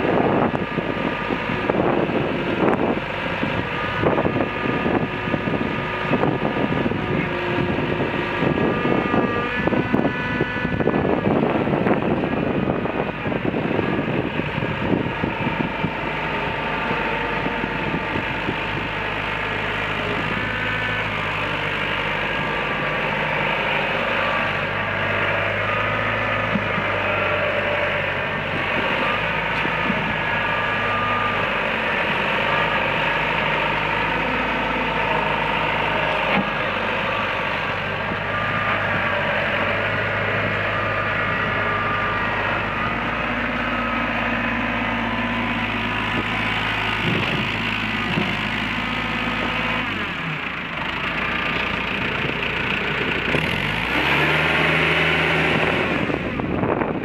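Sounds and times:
wind buffeting microphone: 0:00.0 - 0:19.4, 0:45.2 - 0:48.7, 0:55.4 - 0:57.0
diesel engine running: 0:00.0 - 0:57.0.

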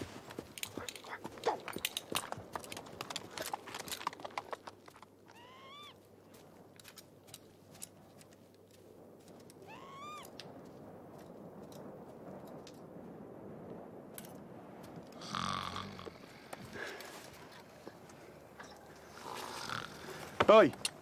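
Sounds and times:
hooves clopping on rocky ground: 0:00.0 - 0:13.2
bird call rising in pitch: 0:09.6 - 0:10.3.

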